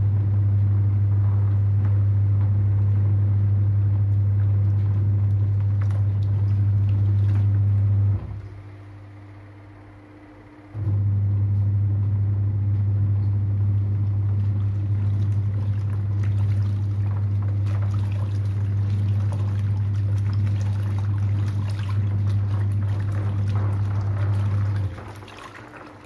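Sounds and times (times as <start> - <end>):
washing machine motor humming: 0.0 - 26.0
water sloshing: 4.4 - 8.6, 14.0 - 26.0.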